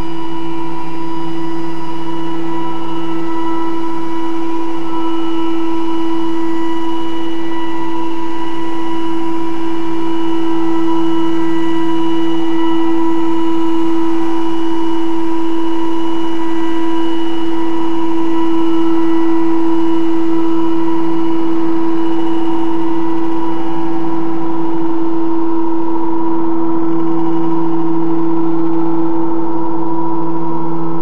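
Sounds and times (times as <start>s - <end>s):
drone music held tone: 0.0s - 31.0s
lower second tone: 0.0s - 31.0s.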